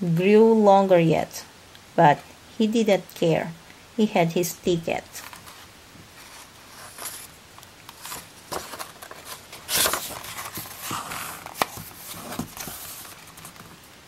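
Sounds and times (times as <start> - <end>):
paper rustles: 5.2 - 13.9
book page swishing: 8.0 - 13.6.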